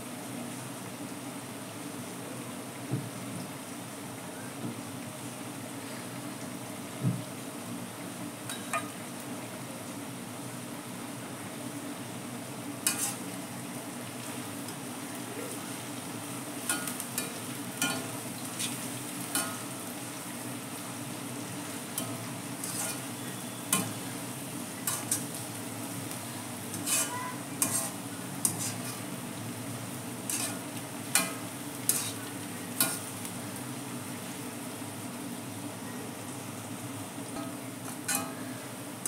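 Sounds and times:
onions sizzling in hot oil: 0.0s - 39.0s
strainer ladle scraping a pan: 12.9s - 13.3s, 16.7s - 19.6s, 22.0s - 24.2s, 24.9s - 25.4s, 26.7s - 29.1s, 30.2s - 33.1s.

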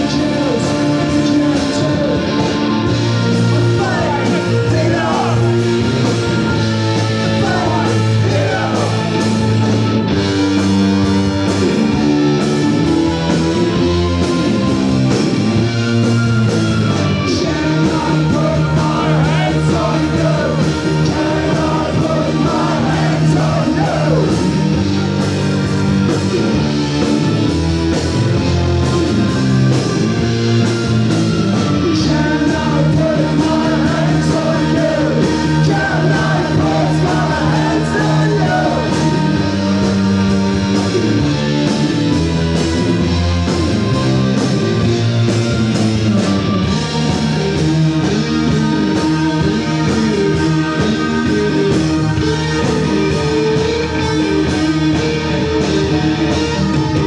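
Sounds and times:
person singing lead vocals: 0.0s - 9.9s, 16.9s - 25.2s, 31.4s - 41.6s
bass guitar: 0.0s - 57.0s
drums: 0.0s - 57.0s
electric guitar: 0.0s - 57.0s.

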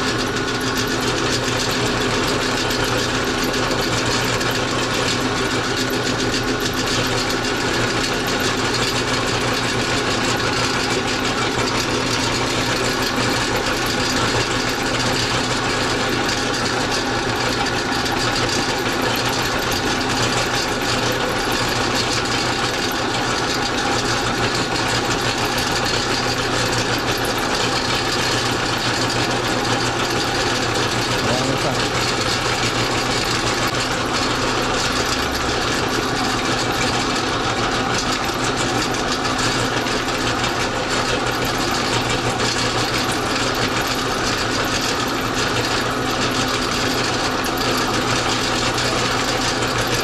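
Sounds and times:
meat grinder motor humming: 0.0s - 50.0s.

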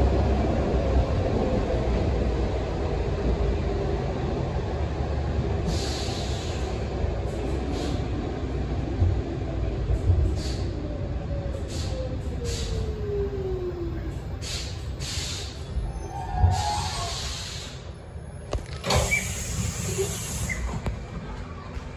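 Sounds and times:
metro train running rumble: 0.0s - 21.9s
short hisses: 14.4s - 15.6s, 16.6s - 17.8s.

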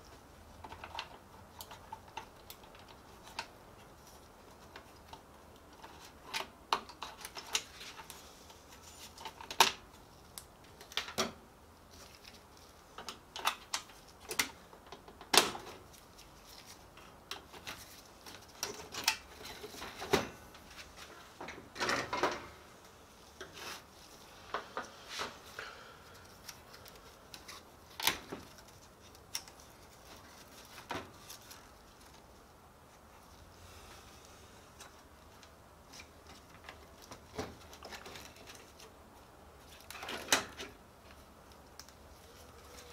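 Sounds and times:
plastic and metal parts clattering: 13.0s - 22.6s, 35.9s - 38.9s, 39.6s - 40.8s.

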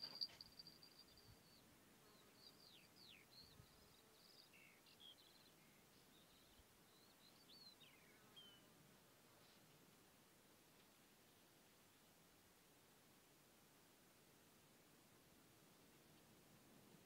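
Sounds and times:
faint bird song: 0.0s - 10.0s.

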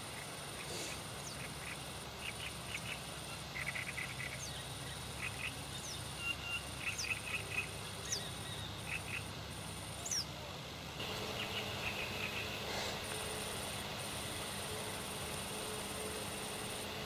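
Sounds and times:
small birds chirping and whistling: 0.6s - 9.3s, 10.0s - 10.3s, 11.2s - 13.2s.

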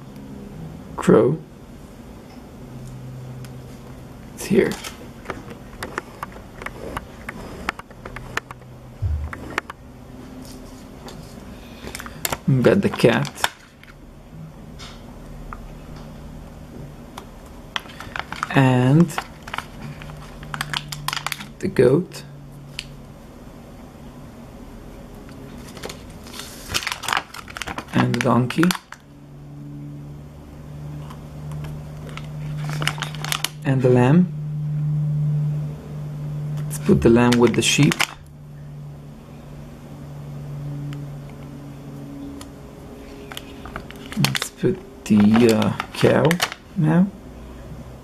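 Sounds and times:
low steady hum: 0.0s - 48.0s
low hum: 5.6s - 11.8s, 29.1s - 37.3s
sticker sheet crinkling: 25.6s - 29.0s, 32.0s - 33.6s, 43.3s - 46.6s
stickers clicking while peeled: 43.3s - 46.6s.

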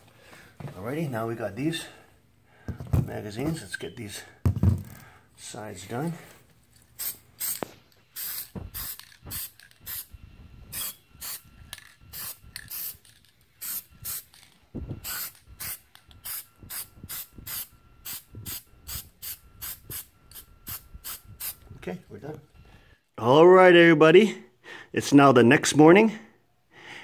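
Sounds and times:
aerosol spray can hissing: 7.0s - 10.1s, 10.7s - 11.5s, 12.1s - 14.4s, 15.0s - 21.6s.

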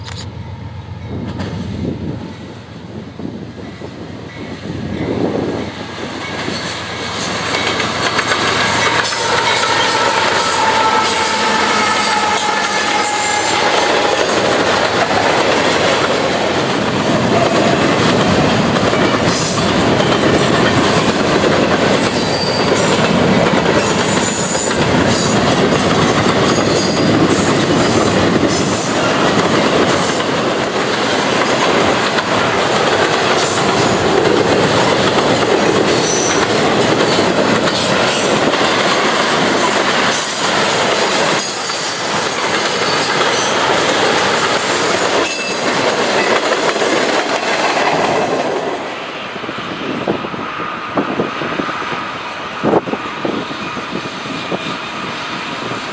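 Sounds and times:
freight train wheels rumbling: 0.0s - 55.9s
high-pitched wheel squeals: 8.7s - 14.3s.

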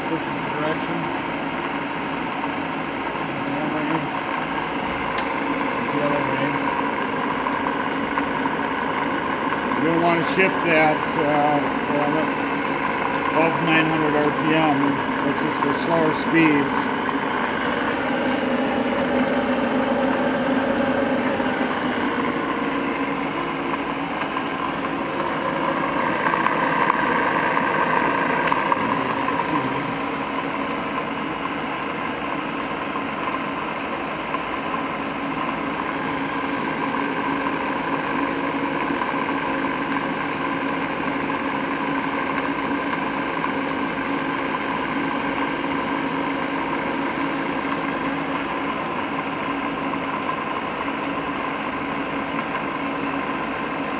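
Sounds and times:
lathe gear whine and motor hum: 0.0s - 53.9s.

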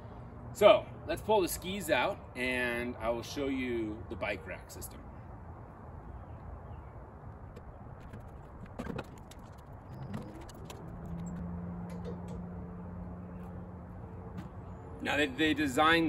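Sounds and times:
outdoor background noise: 0.0s - 16.0s
low hum: 7.4s - 15.1s.

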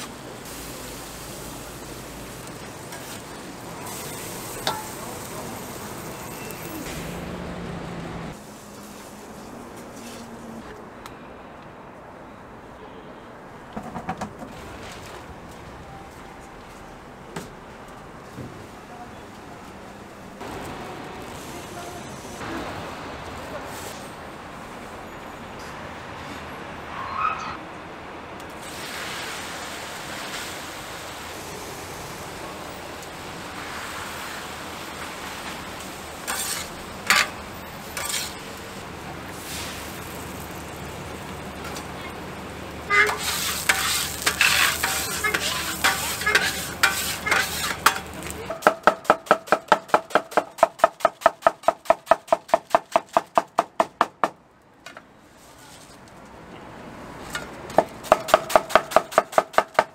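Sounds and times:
food sizzling on a griddle: 0.0s - 7.1s, 8.4s - 10.2s, 21.2s - 22.4s, 28.6s - 48.4s
metal tools scraping a griddle: 36.3s - 37.4s, 38.0s - 38.5s, 42.9s - 48.6s.

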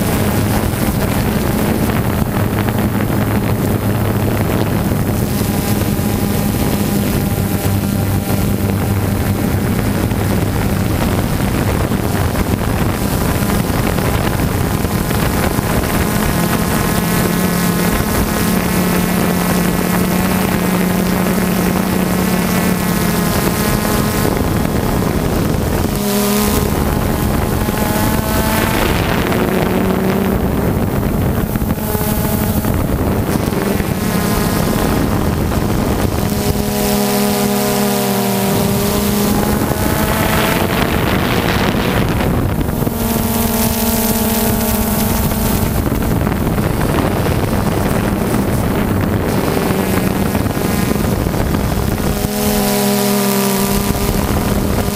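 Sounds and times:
drone propellers buzzing: 0.0s - 54.9s
wind noise on microphone: 0.0s - 54.9s.

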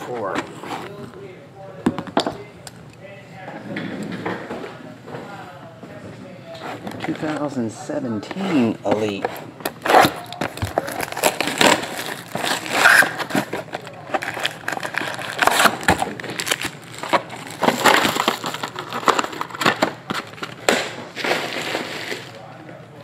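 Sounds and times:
shrink-wrap crinkling and tearing: 9.7s - 22.5s
card packs clicking: 10.1s - 20.8s.

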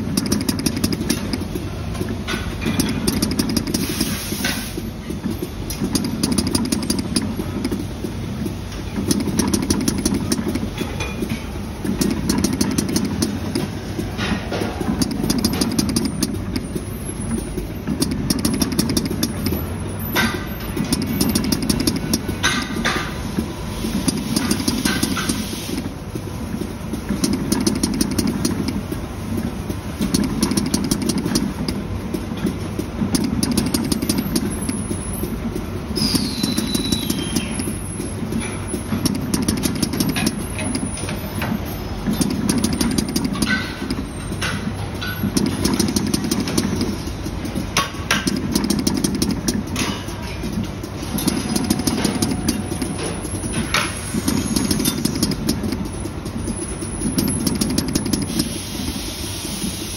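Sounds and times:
dispensing machine drone: 32.8s - 59.0s.

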